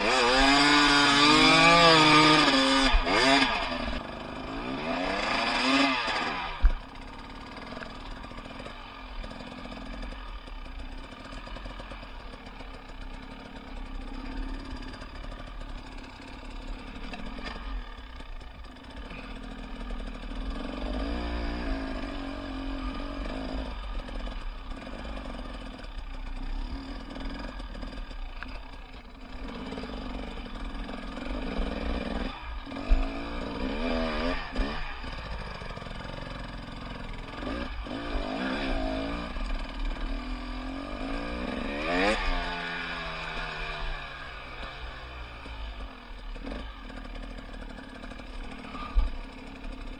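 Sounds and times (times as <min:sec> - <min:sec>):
motorcycle engine running: 0:00.0 - 0:49.9.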